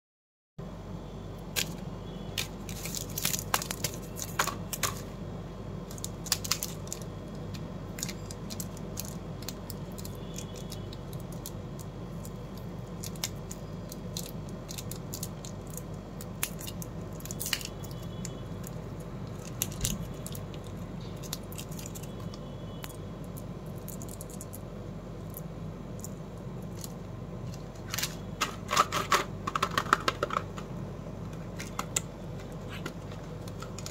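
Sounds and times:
steady low hum: 0:00.6 - 0:33.9
plastic wrappers crinkling: 0:02.4 - 0:05.1, 0:05.9 - 0:22.4.

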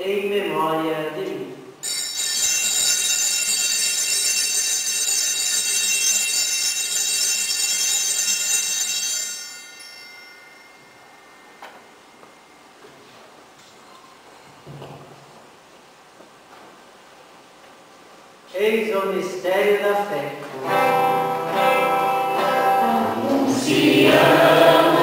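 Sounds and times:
altar bells ringing: 0:01.8 - 0:12.8.

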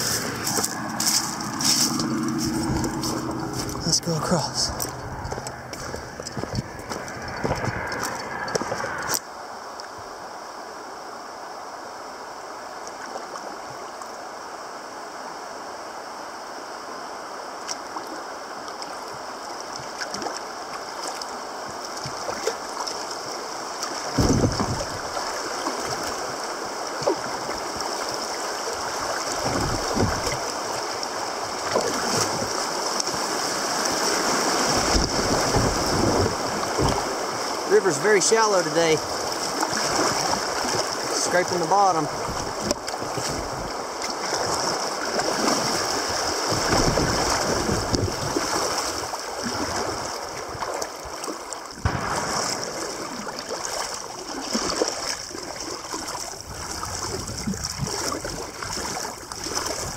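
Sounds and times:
footsteps on pavement: 0:00.0 - 0:09.1
river rushing and gurgling: 0:00.0 - 0:59.9.

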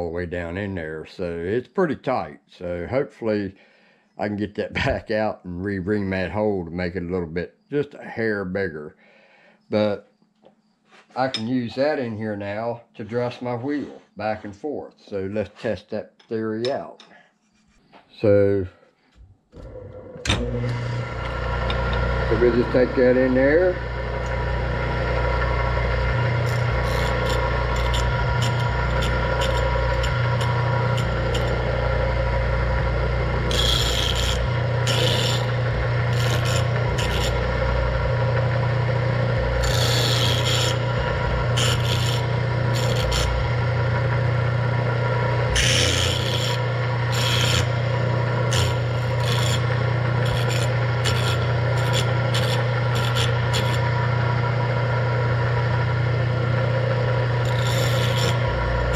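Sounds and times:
tool rasping against grinding wheel: 0:19.6 - 0:54.9, 0:56.4 - 0:58.9
bench grinder motor humming: 0:19.6 - 0:58.9.

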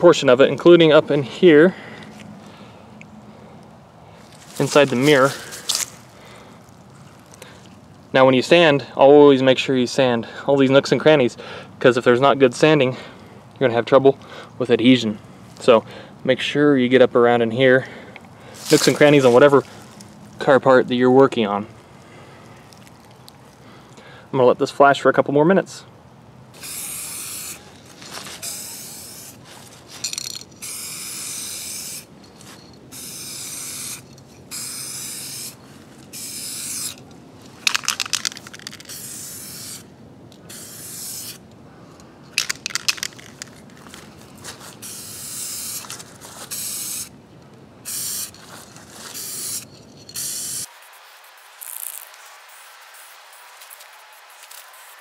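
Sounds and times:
aerosol spray can hissing: 0:26.6 - 0:27.7, 0:28.3 - 0:29.4, 0:30.6 - 0:32.1, 0:32.9 - 0:37.0, 0:37.8 - 0:39.8, 0:40.5 - 0:41.4, 0:44.8 - 0:47.1, 0:47.8 - 0:48.4, 0:49.1 - 0:55.0
short clicking rattles: 0:30.0 - 0:30.7, 0:37.6 - 0:39.0, 0:42.3 - 0:43.8.

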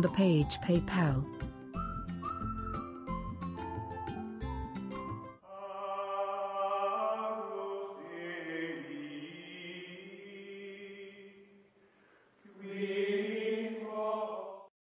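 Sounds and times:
chant-like voices singing: 0:05.4 - 0:11.6, 0:12.5 - 0:14.7.

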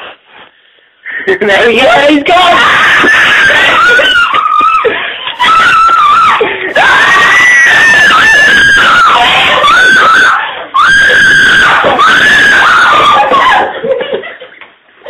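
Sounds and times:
woman screaming: 0:02.3 - 0:13.8.

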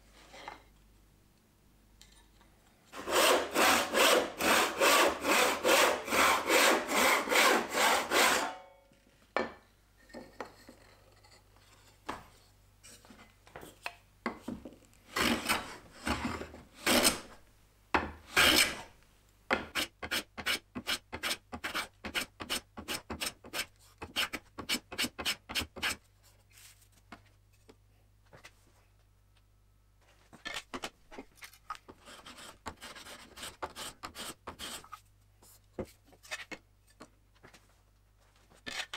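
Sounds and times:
block sanding wood: 0:03.0 - 0:08.5
hand saw cutting wood: 0:03.0 - 0:08.6, 0:15.1 - 0:16.2, 0:16.8 - 0:17.3, 0:18.3 - 0:18.9, 0:19.7 - 0:26.0, 0:32.0 - 0:34.8.

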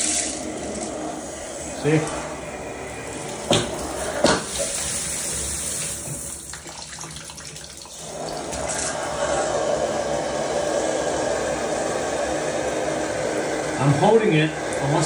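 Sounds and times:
water running into bathtub: 0:00.0 - 0:10.7.

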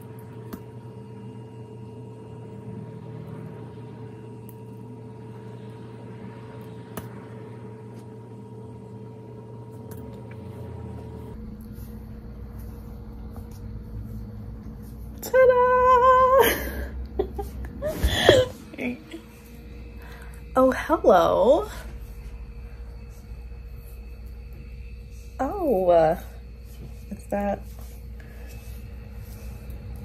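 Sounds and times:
faint whine: 0:00.0 - 0:30.0
low mechanical hum: 0:00.0 - 0:30.0.

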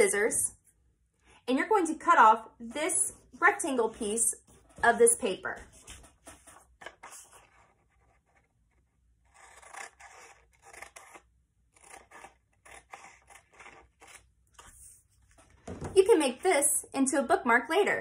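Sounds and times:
scissors snipping paper: 0:09.3 - 0:14.7.

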